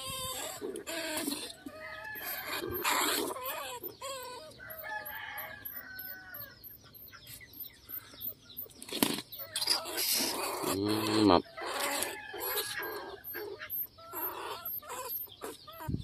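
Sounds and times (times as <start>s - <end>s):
chickens clucking: 0.0s - 16.0s
rooster crowing: 1.6s - 2.9s, 4.6s - 6.6s, 11.8s - 13.3s.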